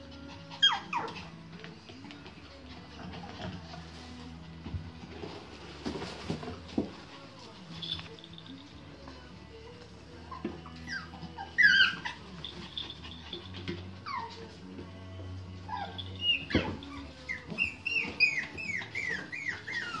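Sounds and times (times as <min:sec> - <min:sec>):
puppies yipping and whining: 0:00.0 - 0:01.6, 0:10.2 - 0:14.8, 0:15.6 - 0:20.0
background music: 0:00.0 - 0:20.0.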